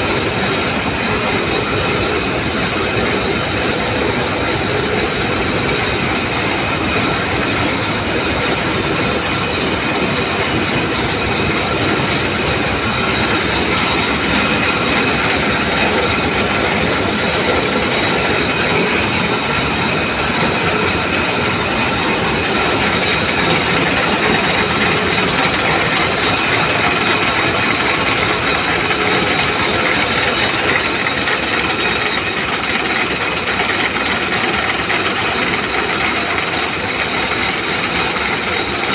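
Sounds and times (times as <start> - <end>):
knitting machine clattering: 0.0 - 38.9.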